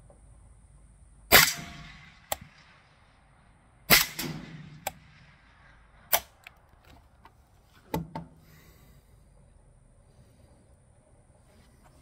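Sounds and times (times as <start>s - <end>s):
suppressed rifle shot: 1.3s - 3.1s, 3.9s - 6.5s.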